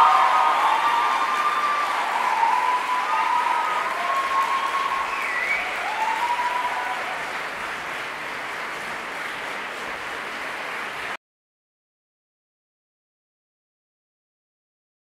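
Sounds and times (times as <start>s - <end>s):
audience applauding: 0.0s - 11.2s
audience calls: 0.0s - 11.2s.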